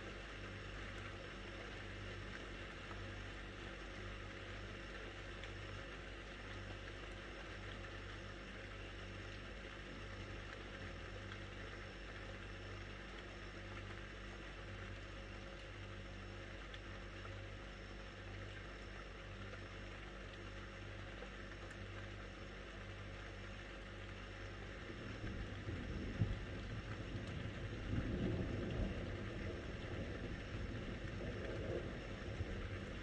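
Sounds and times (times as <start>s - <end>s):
low mechanical hum: 0.0s - 33.0s
uneven low rumble: 24.7s - 33.0s.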